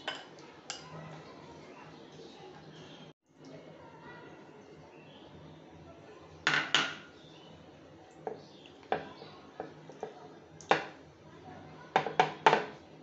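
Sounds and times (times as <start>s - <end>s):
bowl and spoon clinking: 0.0s - 0.9s.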